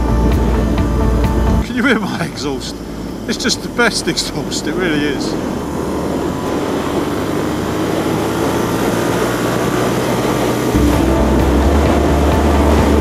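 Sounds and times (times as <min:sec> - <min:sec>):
wind rumble on microphone: 0:00.0 - 0:01.6, 0:05.3 - 0:13.0
motorcycle exhaust accelerating: 0:00.0 - 0:13.0.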